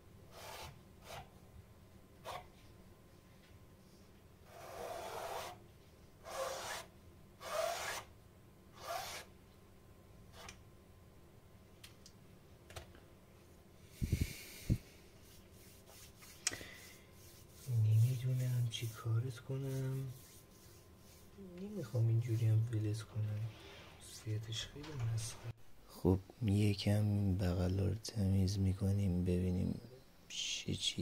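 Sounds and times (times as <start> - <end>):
palette knife scraping paint: 15.2 - 22.4.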